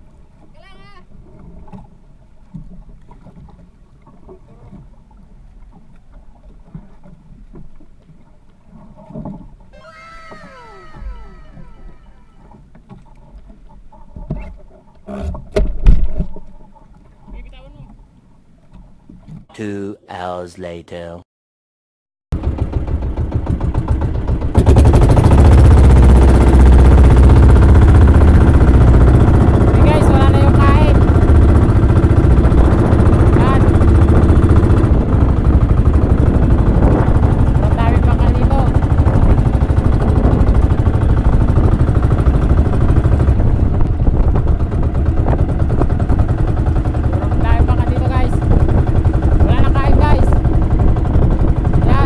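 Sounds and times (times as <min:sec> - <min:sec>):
knocks and thumps in a boat: 0:00.0 - 0:19.5, 0:22.4 - 0:52.0
wind and sea rumble: 0:00.0 - 0:20.4, 0:22.4 - 0:52.0
downward gliding whistle tones: 0:09.7 - 0:12.5.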